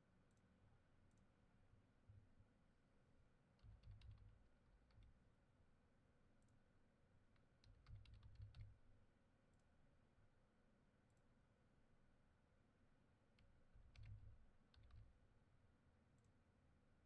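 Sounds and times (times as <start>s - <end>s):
faint keyboard typing: 3.4s - 5.4s, 7.3s - 9.7s, 13.2s - 15.5s.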